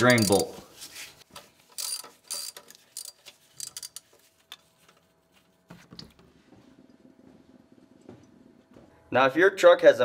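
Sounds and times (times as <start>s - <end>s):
ratchet wrench clicking: 0.0s - 0.4s, 1.7s - 4.0s.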